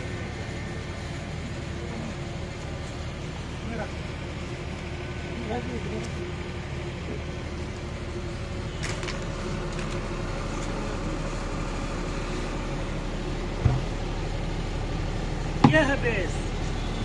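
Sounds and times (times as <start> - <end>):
low engine-like hum: 0.0 - 17.0
sharp thump: 13.6 - 14.0.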